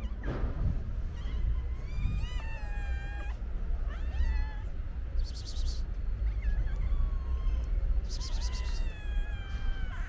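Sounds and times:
steady low rumble: 0.0s - 10.0s
cats meowing: 1.1s - 10.0s.

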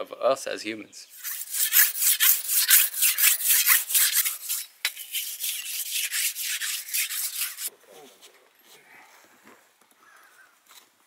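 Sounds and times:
blade scraping on whetstone: 1.2s - 7.7s.

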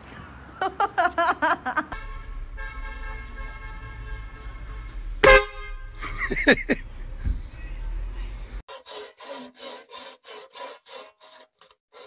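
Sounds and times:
car horn blast: 2.0s - 6.0s.

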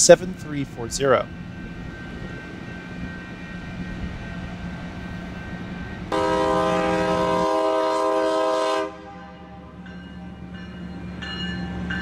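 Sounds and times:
locomotive air horn blast: 6.1s - 9.6s.

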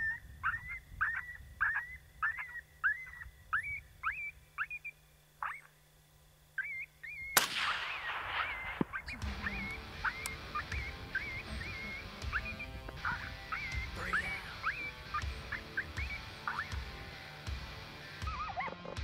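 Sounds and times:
high whimpering yipping calls: 0.0s - 5.8s, 6.6s - 19.0s
rifle shot with echo: 7.4s - 9.6s.

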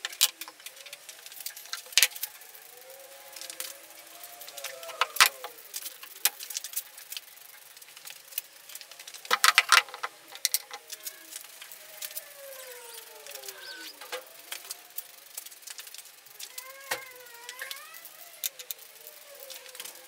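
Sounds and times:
spray can clicks and rattles: 9.1s - 11.1s.

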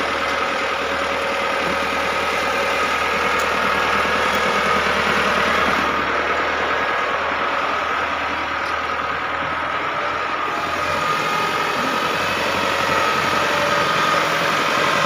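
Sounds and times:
tractor diesel engine running: 0.0s - 15.0s.

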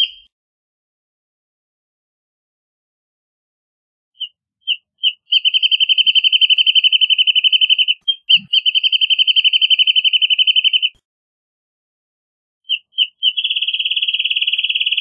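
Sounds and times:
bird singing a trill: 4.2s - 11.0s, 12.7s - 15.0s.

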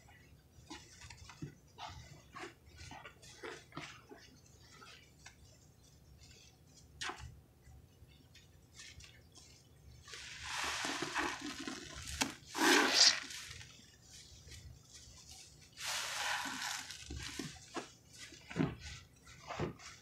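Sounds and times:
wet sponges squishing: 0.0s - 7.4s, 8.1s - 20.0s
foam crackling: 10.1s - 13.8s, 15.8s - 17.9s.

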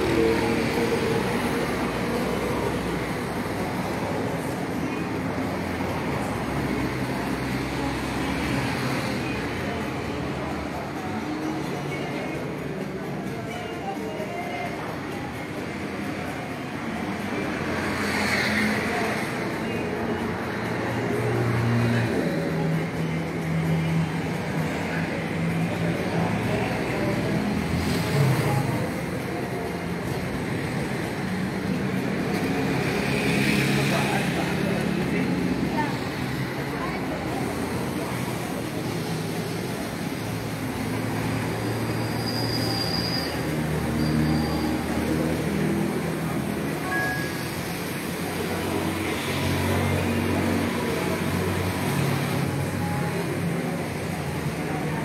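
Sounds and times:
road traffic rumble: 0.0s - 55.0s.

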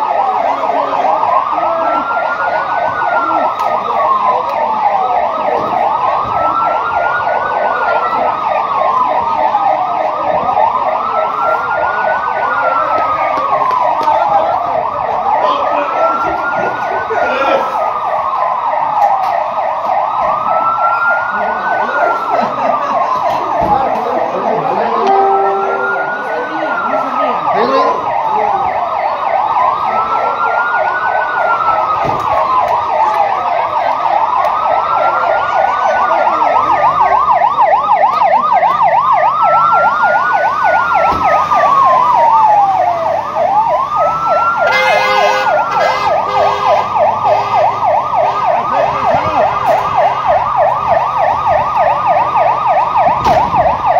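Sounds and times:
siren slow wail: 0.0s - 53.9s
siren fast warble: 24.3s - 53.9s.

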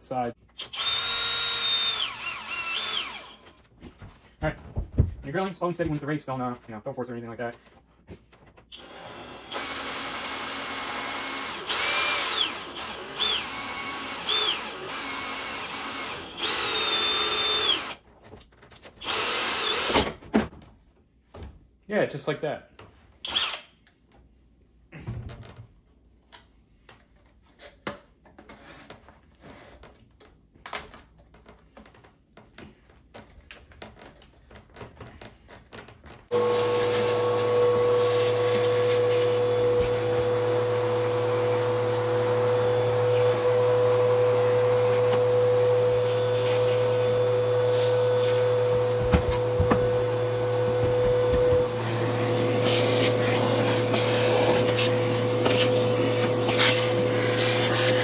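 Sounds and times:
vacuum cleaner whining: 0.6s - 4.0s, 8.7s - 18.0s, 36.3s - 58.0s.

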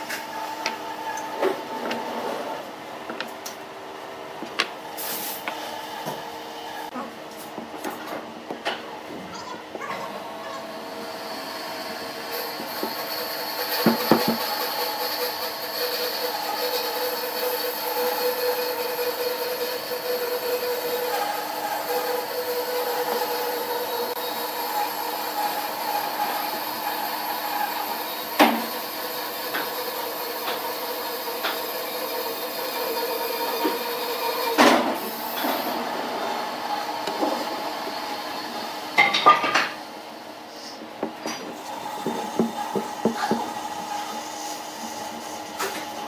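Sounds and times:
steady machine hum: 34.6s - 46.0s.

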